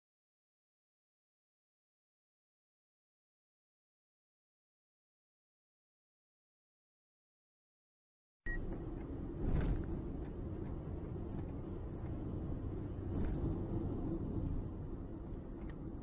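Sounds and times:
street traffic rumble: 0:08.5 - 0:16.0
heavy lorry passing: 0:08.7 - 0:16.0.

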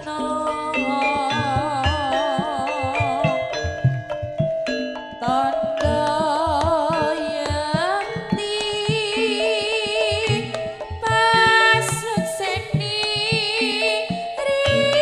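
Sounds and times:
woman singing: 0:00.0 - 0:03.8, 0:05.2 - 0:15.0
ringing pitched tones: 0:00.0 - 0:15.0
drum strokes: 0:03.0 - 0:15.0.

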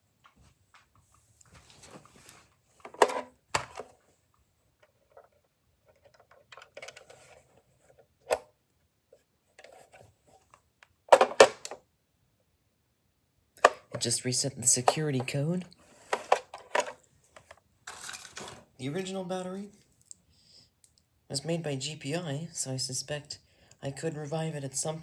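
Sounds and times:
plastic phone handset rubbing: 0:05.9 - 0:08.0.

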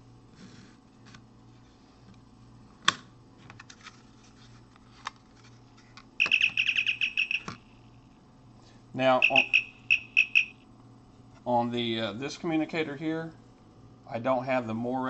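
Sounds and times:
electronic warbling chirp: 0:06.2 - 0:07.6, 0:09.1 - 0:10.6.

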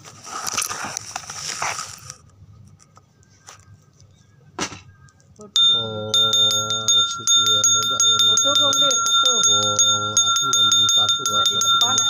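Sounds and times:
rustling on microphone: 0:00.0 - 0:02.2
hand bell ringing: 0:05.6 - 0:12.0.

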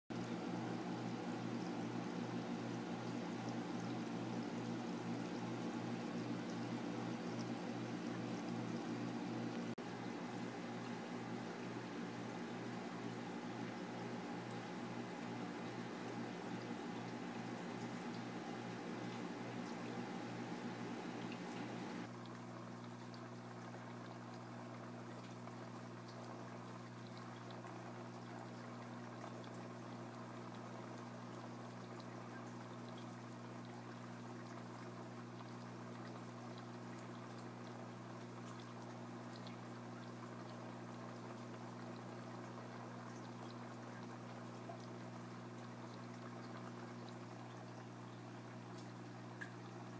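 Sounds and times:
steady low hum: 0:00.2 - 0:22.1
water running and splashing: 0:12.6 - 0:22.1.

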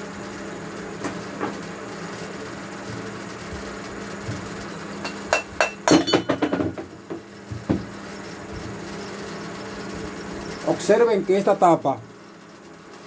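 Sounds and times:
metal cap knocking on workbench: 0:05.1 - 0:07.8.

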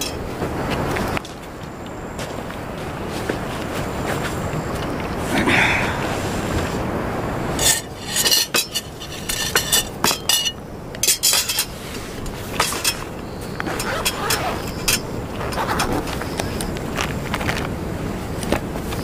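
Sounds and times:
fork clinking on metal plate: 0:07.6 - 0:11.7.

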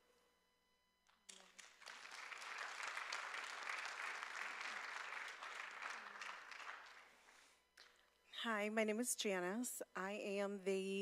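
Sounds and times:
audience applauding: 0:01.3 - 0:07.5.

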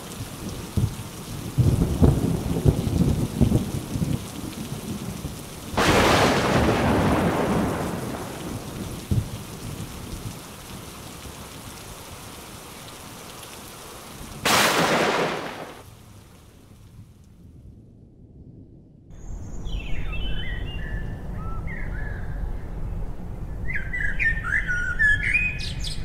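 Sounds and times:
rain hissing: 0:00.0 - 0:17.4
thunderclaps: 0:00.3 - 0:11.4, 0:14.3 - 0:15.9.

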